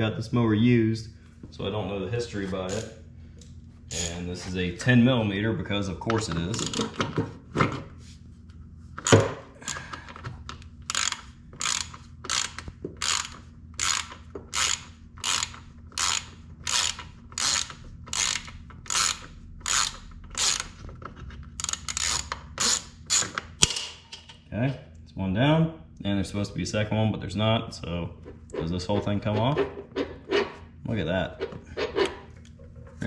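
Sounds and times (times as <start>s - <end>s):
ratchet clicking: 3.9s - 4.2s, 10.8s - 20.8s, 21.6s - 23.5s.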